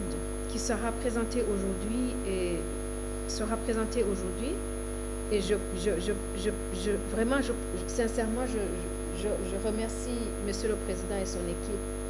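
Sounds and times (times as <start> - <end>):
woman speaking into a microphone: 0.0 - 4.7, 5.3 - 11.9
electrical mains hum: 0.0 - 12.0.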